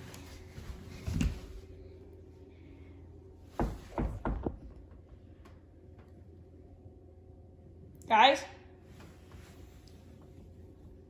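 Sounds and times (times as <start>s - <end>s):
door thump: 3.6s - 4.9s
door knocks and bumps: 3.6s - 5.1s.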